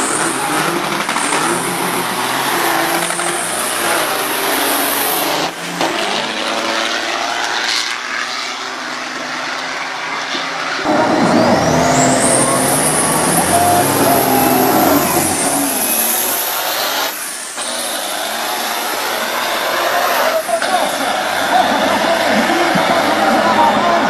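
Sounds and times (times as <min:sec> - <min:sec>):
diesel truck engines racing: 0:00.0 - 0:24.0
high turbo whistle: 0:10.9 - 0:21.8.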